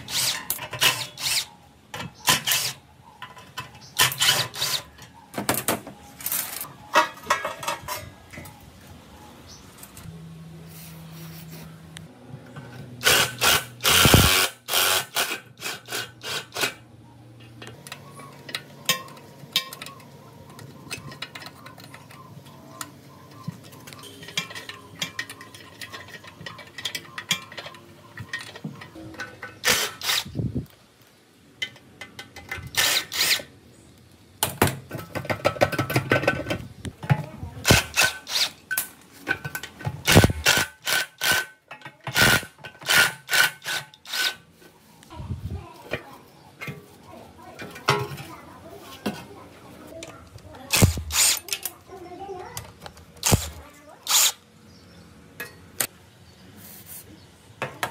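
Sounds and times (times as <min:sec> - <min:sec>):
tools and metal parts clattering: 0:00.0 - 0:08.6, 0:17.4 - 0:30.3, 0:34.5 - 0:44.4, 0:45.9 - 0:49.2, 0:50.0 - 0:54.4.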